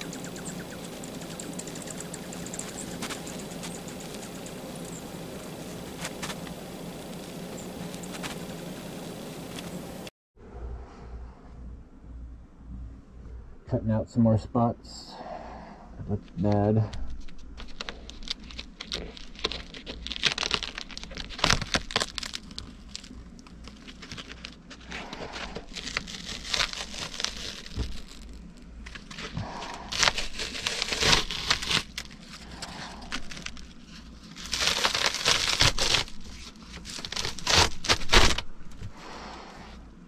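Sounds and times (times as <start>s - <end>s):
ceiling paneling crinkling and tearing: 17.0s - 38.9s.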